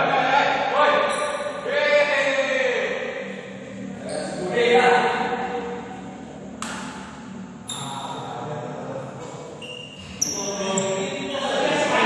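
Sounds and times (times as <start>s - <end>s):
short high squeak: 1.1s - 1.6s, 3.3s - 4.4s, 7.7s - 8.2s, 9.6s - 11.0s
rackets hitting shuttlecock: 6.6s - 7.2s.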